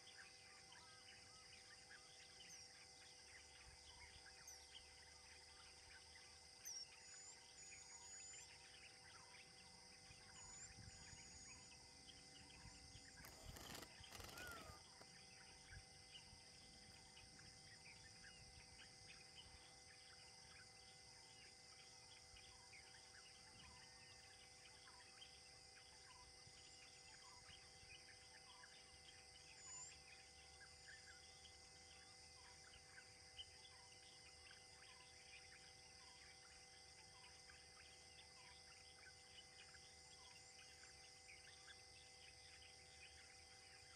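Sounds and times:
small bird chirps: 0:00.0 - 0:20.8
high-pitched insect drone: 0:07.3 - 0:25.1.

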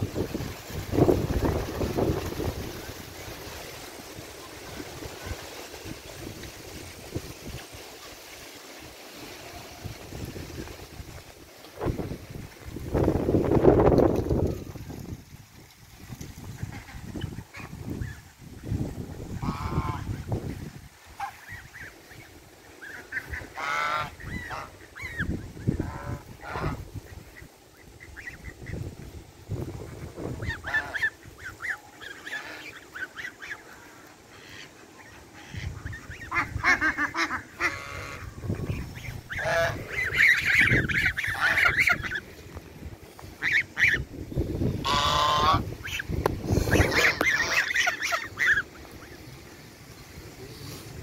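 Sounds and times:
geese honking: 0:19.4 - 0:20.2, 0:22.8 - 0:27.0, 0:30.4 - 0:42.4, 0:43.3 - 0:49.2.

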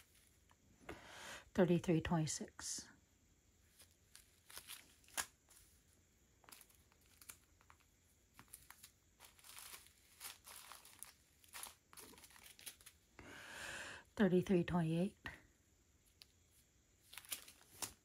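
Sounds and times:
plastic bags crinkling: 0:03.8 - 0:05.8, 0:06.4 - 0:13.1, 0:17.0 - 0:18.0.

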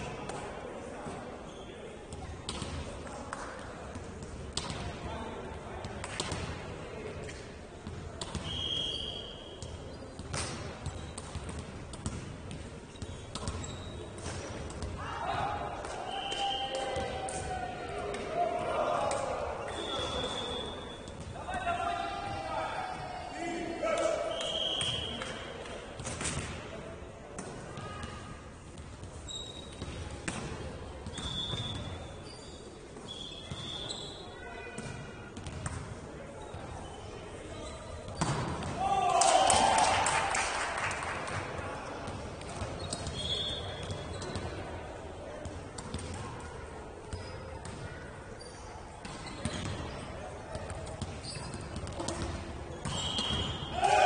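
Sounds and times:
sports shoes squeaking: 0:08.4 - 0:11.4, 0:12.6 - 0:14.5, 0:19.6 - 0:21.2, 0:29.0 - 0:30.0, 0:31.0 - 0:34.4, 0:36.4 - 0:38.4, 0:42.6 - 0:44.7, 0:47.1 - 0:47.6, 0:48.3 - 0:53.7
ball thuds on indoor court: 0:38.1 - 0:38.9.

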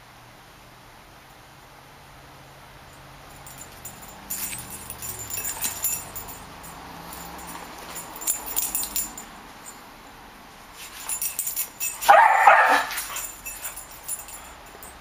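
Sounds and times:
light jingling: 0:02.4 - 0:15.0
dog barking: 0:12.0 - 0:13.3.

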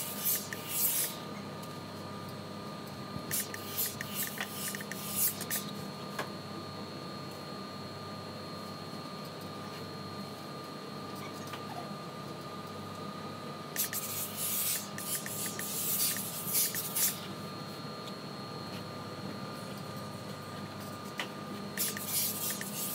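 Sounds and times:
steam iron hissing: 0:00.0 - 0:01.2, 0:03.3 - 0:05.6, 0:13.8 - 0:17.2, 0:21.8 - 0:22.9
machine hum with high whine: 0:00.0 - 0:22.9.

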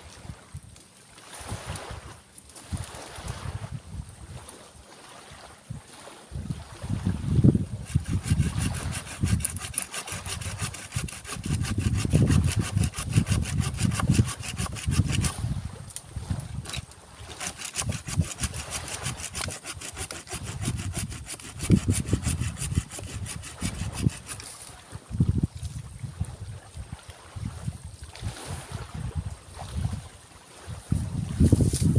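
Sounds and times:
saw cutting wood: 0:07.8 - 0:15.4, 0:16.7 - 0:24.6.

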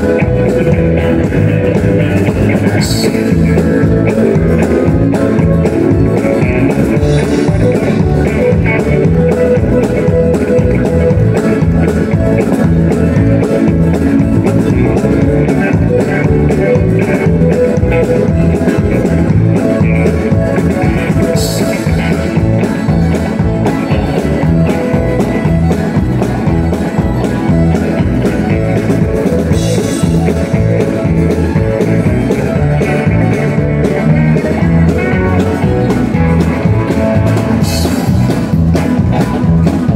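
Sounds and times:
country band playing: 0:00.0 - 0:39.9
fiddle lead: 0:00.0 - 0:39.9.

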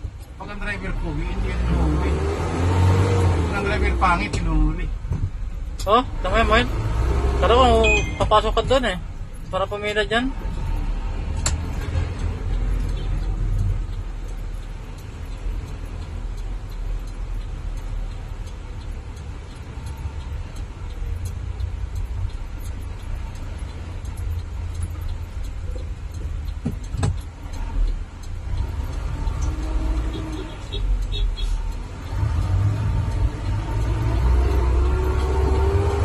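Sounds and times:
engine low rumble: 0:00.0 - 0:36.0
road noise inside cab: 0:00.0 - 0:36.0
sharp clicks: 0:08.0 - 0:36.0.

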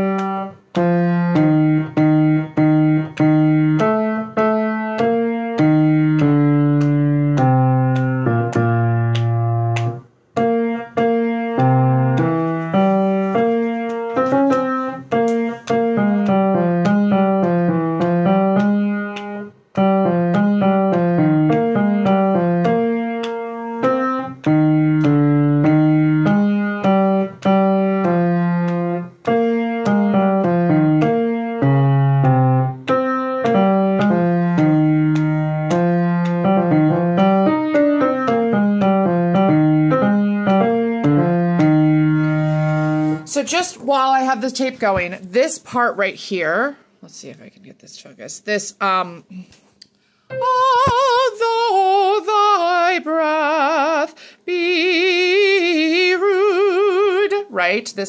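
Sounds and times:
piano playing chords: 0:00.0 - 0:43.6, 0:50.3 - 0:54.0.

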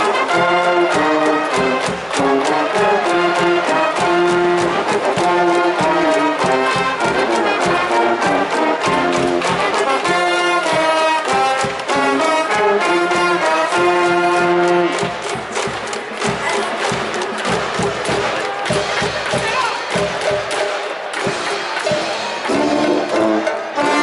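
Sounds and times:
cheering brass band playing: 0:00.0 - 0:24.0.

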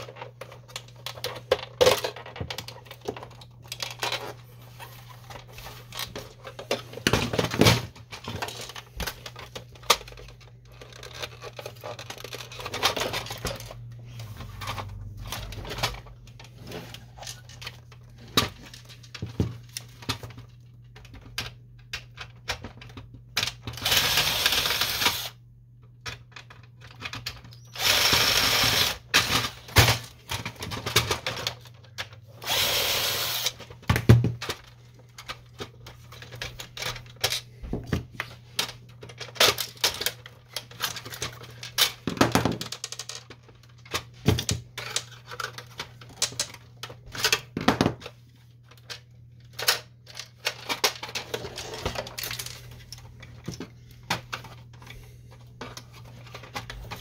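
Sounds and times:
plastic parts clicking and knocking: 0:00.0 - 0:57.0
electric screwdriver running: 0:23.8 - 0:25.4, 0:27.8 - 0:29.0, 0:32.4 - 0:33.6.

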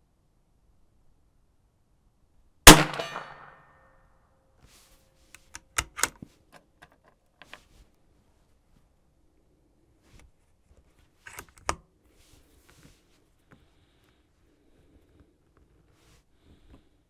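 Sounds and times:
rifle shot: 0:02.7 - 0:03.6
rifle bolt metallic clicks: 0:05.4 - 0:06.2.

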